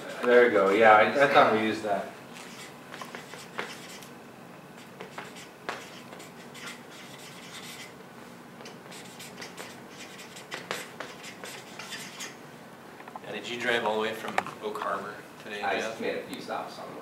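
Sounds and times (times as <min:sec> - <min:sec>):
pen scratching on paper: 0:02.4 - 0:04.1, 0:04.8 - 0:07.9, 0:08.9 - 0:12.4.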